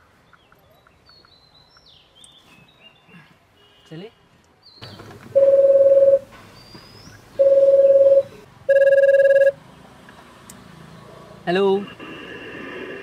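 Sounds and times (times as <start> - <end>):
ringtone tones: 5.4 - 6.3, 7.4 - 9.6.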